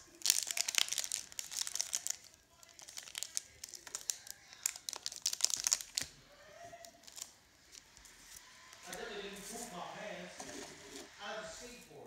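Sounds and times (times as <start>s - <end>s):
plastic wrapping crinkling: 0.0s - 6.1s, 6.8s - 9.7s.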